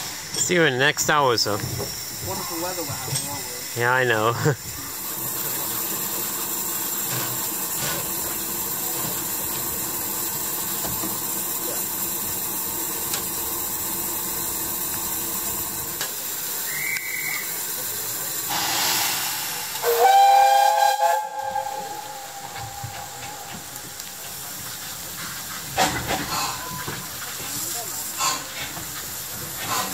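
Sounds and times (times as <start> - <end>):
gush of escaping steam: 0.0 - 29.9
steam hissing: 0.0 - 29.9
long steam whistle blast: 16.6 - 17.7, 18.5 - 23.6
short high whistle: 16.7 - 17.6, 18.5 - 22.4.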